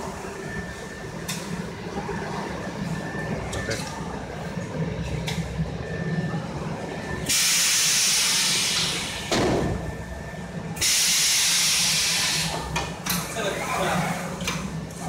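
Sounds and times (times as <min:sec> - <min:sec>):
low machine hum: 0:00.0 - 0:10.8
compressed air hissing: 0:10.8 - 0:12.5.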